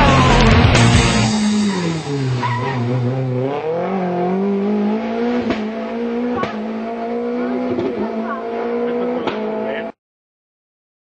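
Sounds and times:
rally car engine running: 0.0s - 10.0s.

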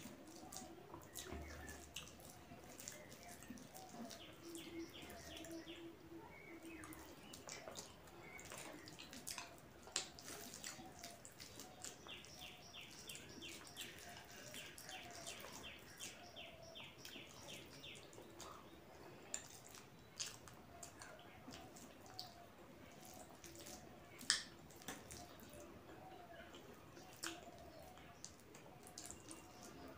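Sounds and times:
wet squishes of hand mixing rice: 0.0s - 29.9s
bird chirping: 0.4s - 9.2s, 10.8s - 19.3s.

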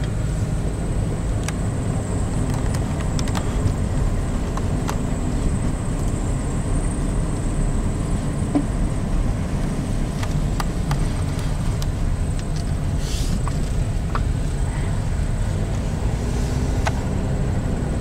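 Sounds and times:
car engine and tyres rumbling: 0.0s - 18.0s.

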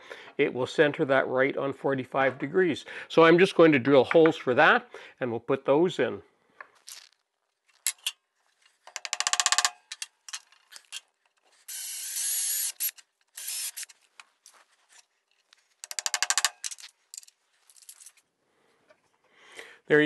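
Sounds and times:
power drill boring into wood: 11.7s - 13.9s
rattling clicks: 15.8s - 18.2s.

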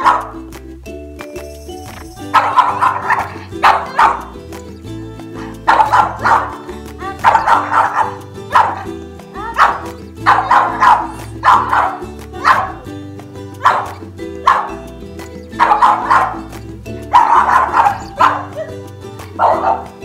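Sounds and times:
dog barking: 0.0s - 0.4s, 2.3s - 4.4s, 5.4s - 6.6s, 7.2s - 8.9s, 9.6s - 12.8s, 13.6s - 14.8s, 15.6s - 16.5s, 17.1s - 18.8s, 19.4s - 20.0s
background music low notes: 0.0s - 20.0s.

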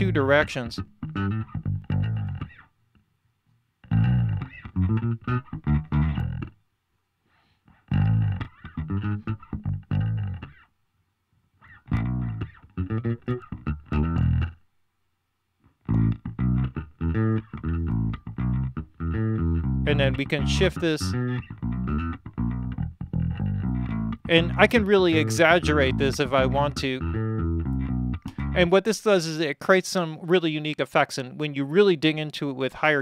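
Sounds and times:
filtered electric guitar and bass music: 0.0s - 2.6s, 3.8s - 6.6s, 7.8s - 10.6s, 11.6s - 14.6s, 15.8s - 28.7s.

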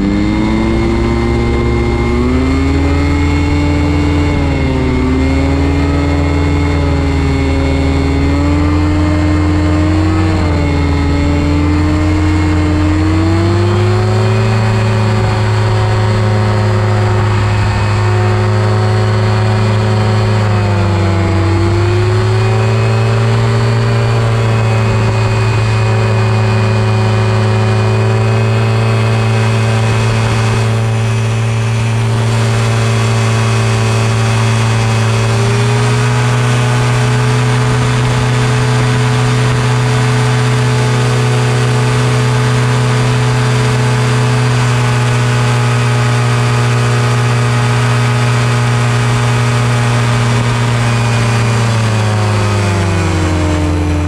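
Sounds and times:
aircraft engine and propeller droning: 0.0s - 54.0s.

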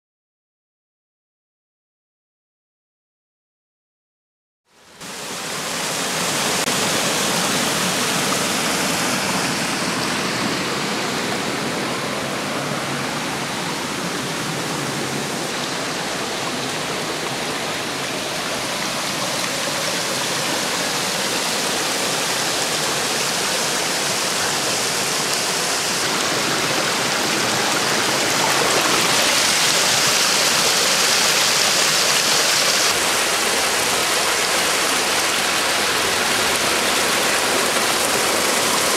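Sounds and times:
water rushing down a wooden flume: 4.8s - 38.9s.

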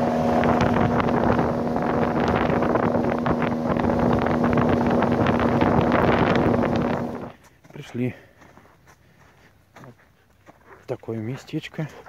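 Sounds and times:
waves slapping boat hull: 0.0s - 7.3s
outboard motor running: 0.0s - 7.4s
wind buffeting microphone: 0.0s - 7.4s.

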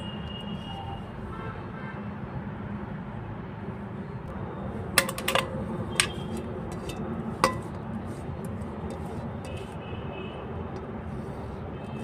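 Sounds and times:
metal bowl clinking on pot: 5.0s - 7.8s.

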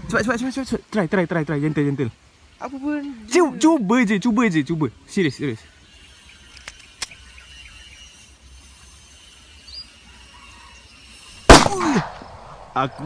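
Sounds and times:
bird chirp: 5.4s - 11.5s
very loud bang: 11.5s - 12.8s.

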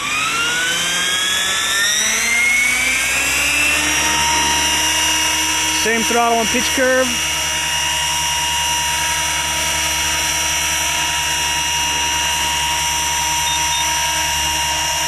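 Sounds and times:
electric motor and gears whining: 0.0s - 15.0s
rotors humming: 0.0s - 15.0s.

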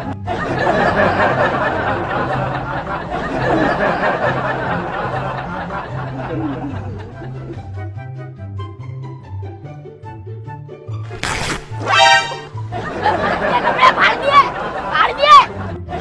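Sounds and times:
canned laughter: 0.3s - 7.6s, 12.7s - 16.0s.

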